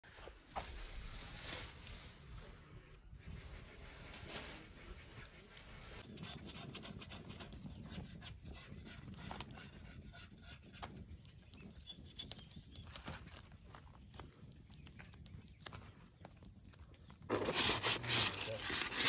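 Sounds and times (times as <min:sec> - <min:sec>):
rustling on plastic sacking: 0:17.3 - 0:19.0.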